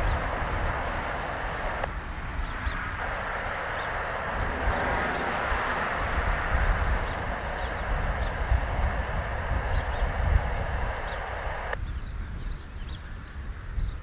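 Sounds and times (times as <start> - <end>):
bird whistled calls: 0.0 - 8.7
wind buffeting microphone: 0.0 - 14.0.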